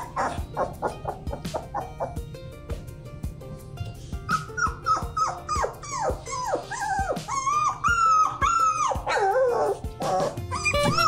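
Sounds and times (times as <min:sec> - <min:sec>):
puppy yipping and whining: 0:00.0 - 0:02.2, 0:04.3 - 0:11.0.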